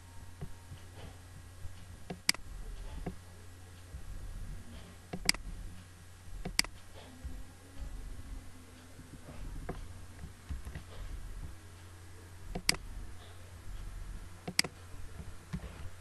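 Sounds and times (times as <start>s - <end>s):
low hum: 0.0s - 16.0s
computer mouse clicking: 5.1s - 5.5s, 6.4s - 6.8s, 12.5s - 12.9s, 14.4s - 14.8s.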